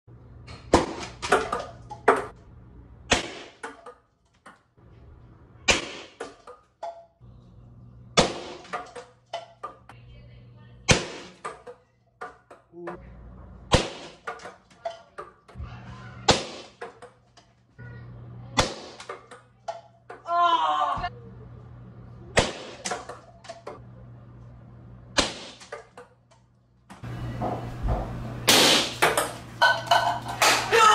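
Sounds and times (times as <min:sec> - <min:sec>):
faint low hum: 0:07.2 - 0:08.2, 0:21.0 - 0:22.4
thrown objects knocking and clattering: 0:29.0 - 0:30.8.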